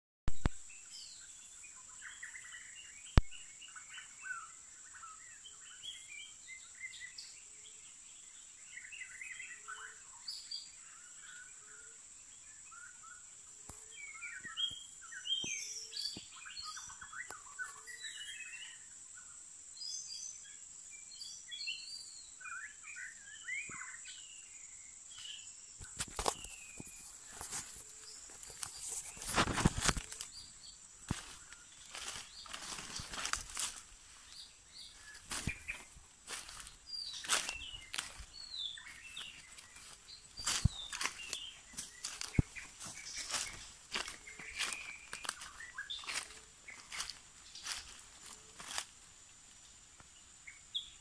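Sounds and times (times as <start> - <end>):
forest birds singing: 0.3 - 51.0
rustling noise: 25.8 - 30.5.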